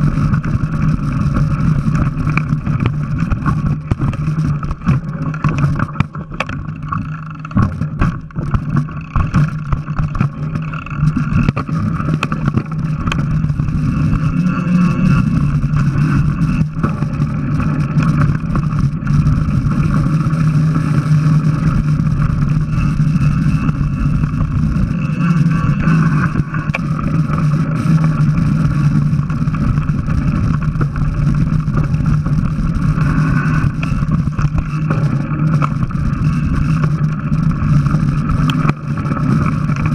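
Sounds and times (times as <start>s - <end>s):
bike rattling: 0.0s - 39.9s
tyres on dirt trail: 0.0s - 39.9s
wind on microphone: 0.0s - 39.9s.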